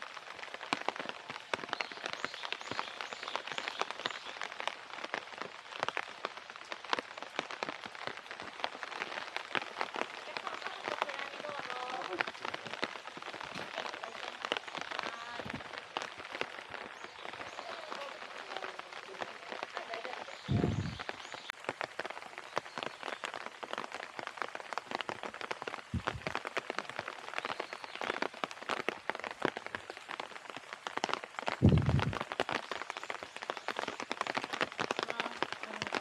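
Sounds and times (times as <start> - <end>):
steady rain: 0.0 - 36.0
short low thumps: 26.0 - 26.4, 31.6 - 32.2.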